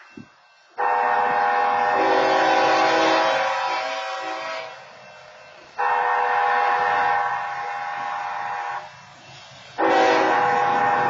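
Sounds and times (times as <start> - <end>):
locomotive air horn blasts: 0.8 - 4.9, 5.8 - 8.9, 9.8 - 11.0.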